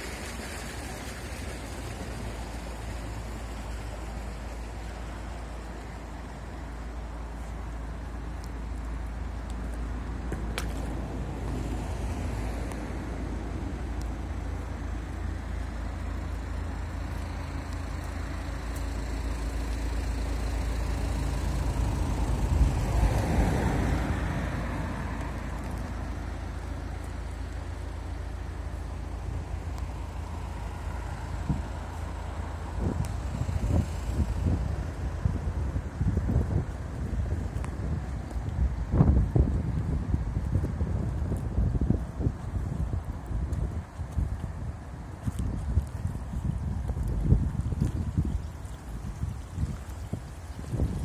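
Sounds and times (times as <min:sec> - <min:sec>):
road vehicle passing: 0:00.0 - 0:51.0
wind rumbling on microphone: 0:00.0 - 0:51.0.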